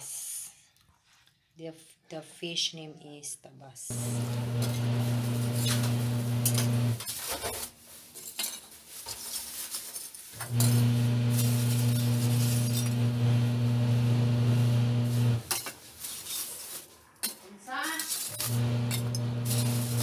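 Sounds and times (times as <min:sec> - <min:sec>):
charcoal clinking and knocking: 0:08.2 - 0:13.1, 0:15.0 - 0:16.6, 0:18.0 - 0:20.0.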